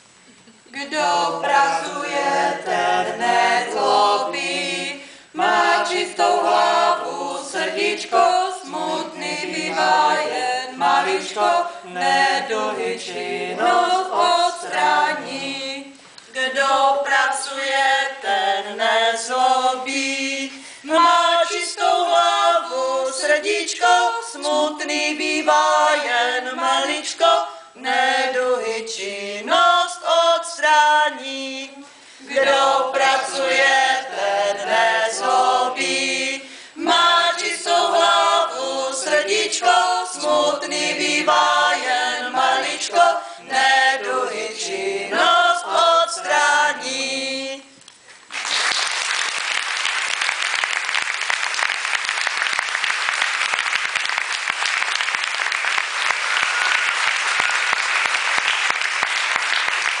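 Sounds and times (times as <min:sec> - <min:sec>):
group singing in unison: 0:00.7 - 0:47.8
audience applause: 0:48.3 - 1:00.0.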